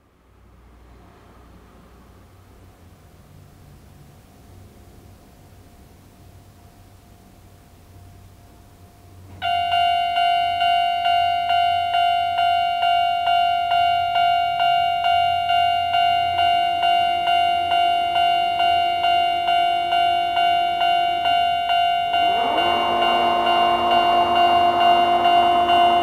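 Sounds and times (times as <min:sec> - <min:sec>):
level-crossing bell ringing: 0:09.4 - 0:26.0.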